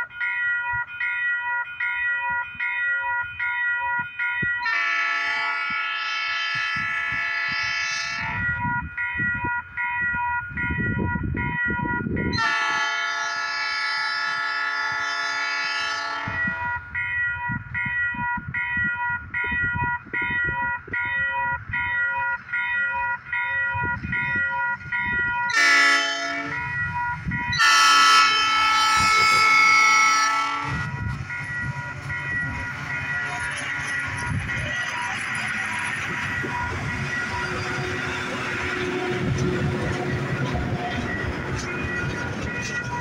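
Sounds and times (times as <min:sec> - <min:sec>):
crossing bell dinging: 0:00.0 - 0:43.0
locomotive air horn blasts: 0:04.6 - 0:08.6, 0:12.3 - 0:16.8, 0:25.5 - 0:31.2, 0:36.2 - 0:41.7.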